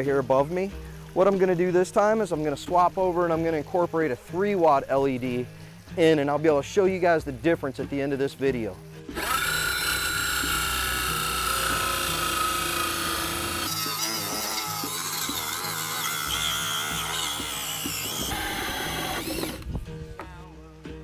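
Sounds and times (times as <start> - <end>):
drill cutting with hole saw: 9.1 - 19.7.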